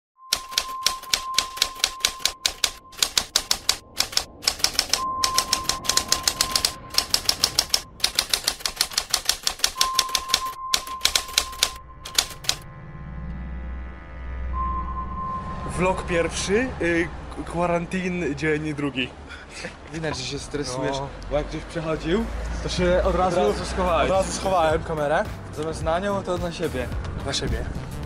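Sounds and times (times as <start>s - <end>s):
typewriter keys clacking: 0.3s - 12.6s.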